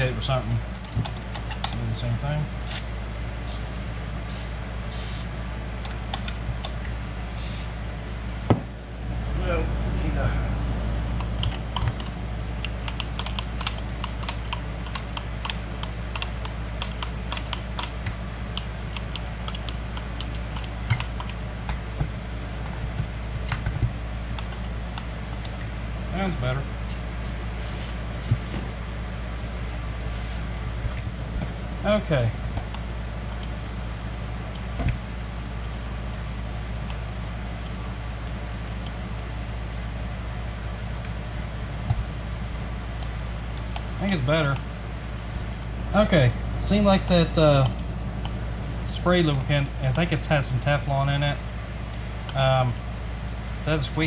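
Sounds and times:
low hum: 0.0 - 54.0
throttle linkage clicking: 11.2 - 21.4.

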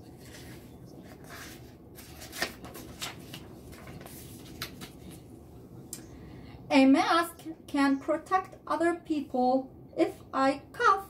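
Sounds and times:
paper pages rustling: 0.0 - 5.3
paper crinkles: 0.2 - 5.2.

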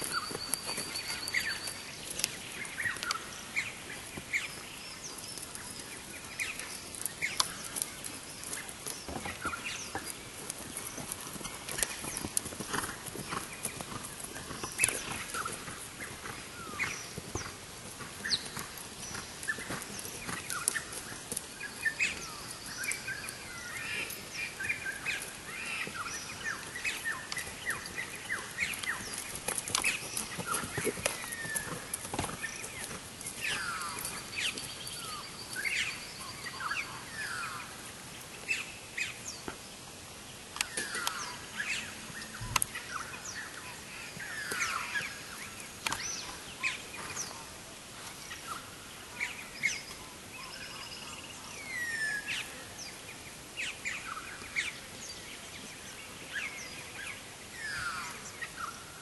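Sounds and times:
horse hoofbeats on grass: 0.0 - 37.7
birds calling: 0.0 - 39.5, 40.6 - 58.9
steady outdoor hiss: 0.0 - 59.0.

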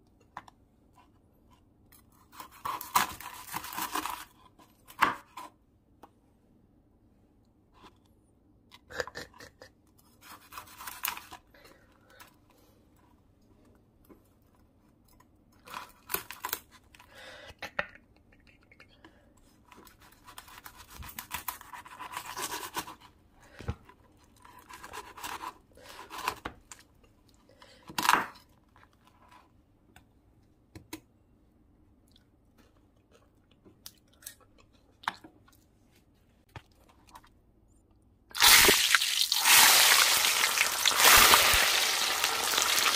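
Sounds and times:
knife crunching through crackling: 2.3 - 4.3, 38.4 - 42.9.

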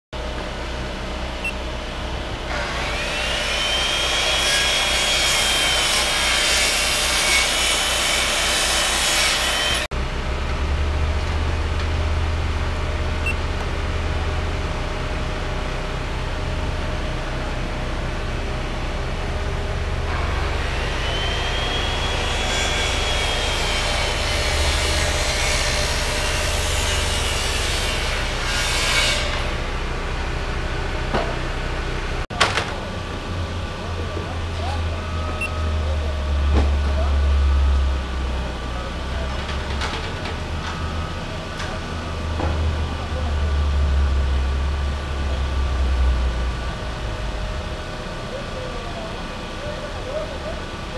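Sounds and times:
power saw cutting: 2.5 - 9.9, 19.9 - 31.5.

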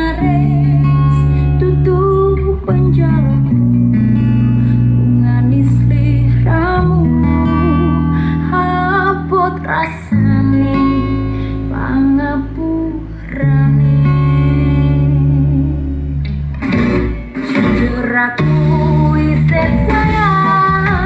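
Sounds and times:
song with singing and guitar: 0.0 - 21.0.

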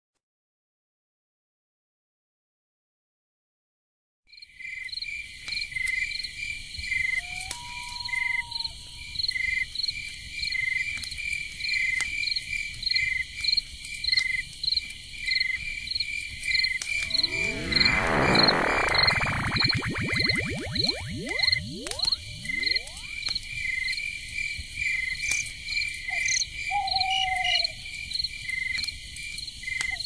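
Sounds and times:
swirling sound effect: 16.8 - 23.4.

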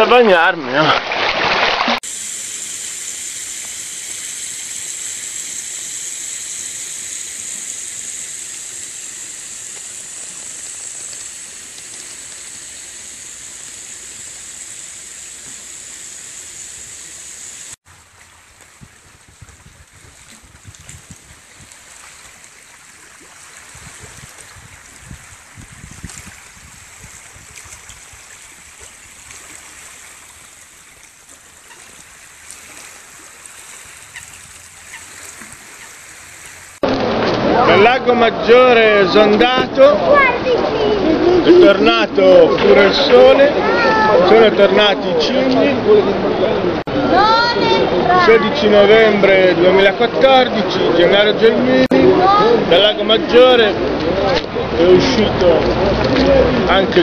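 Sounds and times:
hose spraying water on pavement: 1.4 - 36.8.

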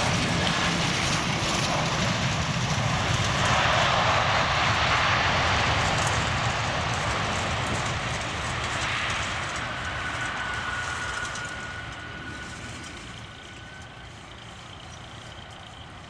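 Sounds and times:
jet engines roaring: 0.0 - 16.0
thin steady whine: 5.4 - 16.0.

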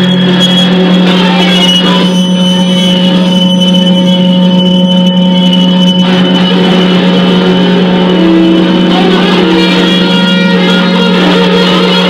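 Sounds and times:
noise music from guitar and bass: 0.0 - 12.0.

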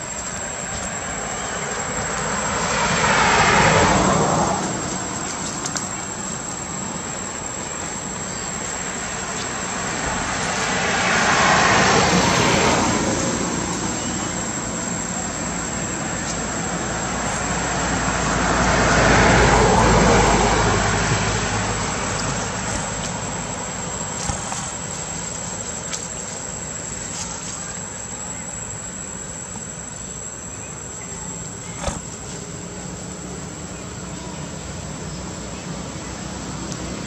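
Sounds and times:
outdoor background noise: 0.0 - 37.0
road vehicles passing: 0.0 - 37.0.

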